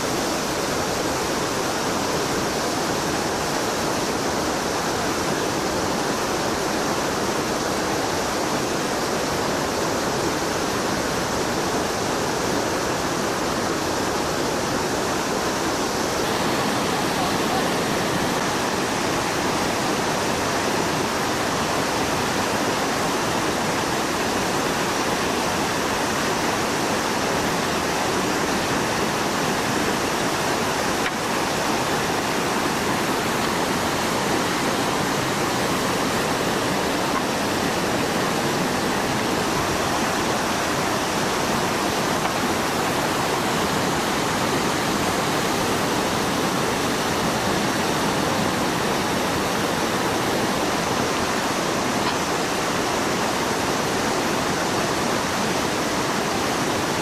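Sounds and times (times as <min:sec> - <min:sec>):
water rushing over rocks: 0:00.0 - 0:57.0.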